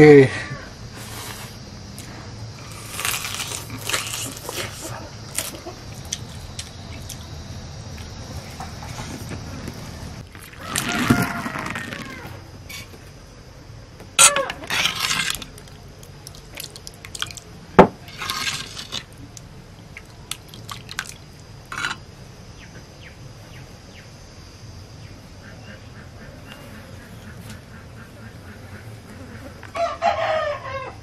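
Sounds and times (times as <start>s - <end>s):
liquid splashing and dripping: 16.0s - 17.5s.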